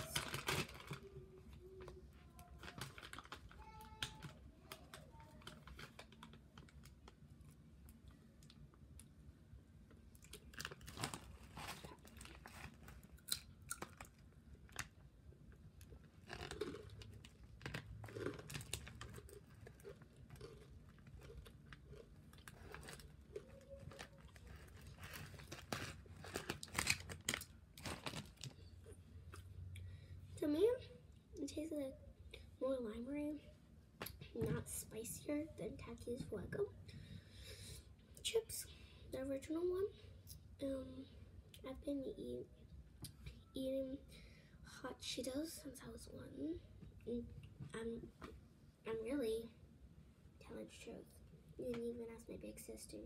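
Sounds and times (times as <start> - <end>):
crunching and chewing chips: 0.0 - 1.2, 1.8 - 9.1, 10.1 - 29.9
foil snack bag crinkling: 0.0 - 1.2, 2.4 - 7.3, 10.2 - 14.9, 15.8 - 28.6.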